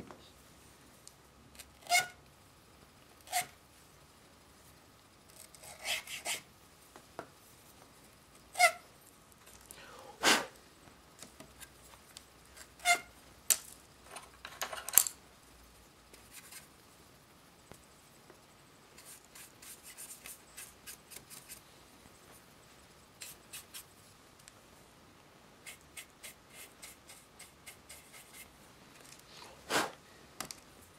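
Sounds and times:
tools and jars clicking and knocking: 0:13.5 - 0:15.2
paintbrush scratching on plastic: 0:19.0 - 0:21.6, 0:25.6 - 0:28.5.

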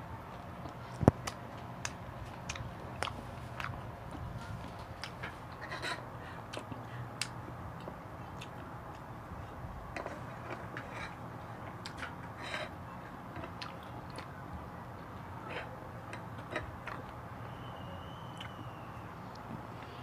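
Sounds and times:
steady low hum: 0:00.0 - 0:20.0
chewing mouth clicks and smacks: 0:00.6 - 0:05.2.

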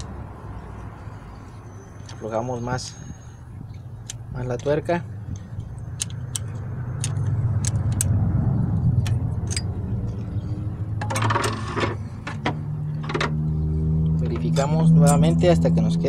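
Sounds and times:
low engine-like rumble: 0:00.0 - 0:16.0
metallic wrench clicks: 0:04.0 - 0:08.2, 0:09.0 - 0:09.7.

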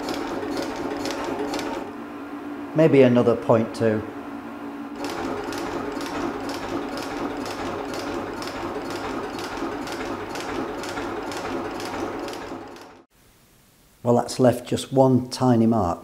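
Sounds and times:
metal shaper running: 0:00.0 - 0:01.9, 0:05.0 - 0:13.0.

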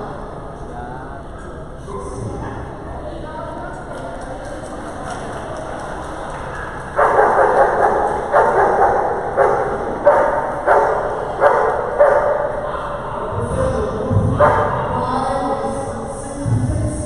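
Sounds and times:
hall background noise: 0:00.0 - 0:17.0
dog barking: 0:06.5 - 0:13.2, 0:14.3 - 0:14.9.

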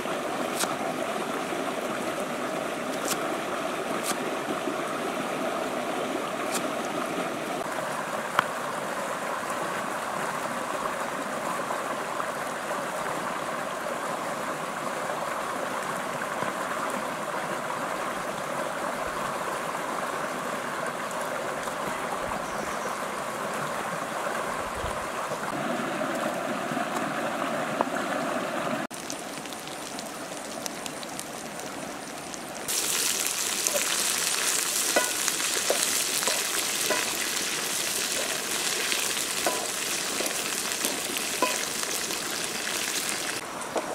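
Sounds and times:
rocky stream running: 0:00.0 - 0:43.9
crickets sizzling in a pan: 0:32.7 - 0:43.9.

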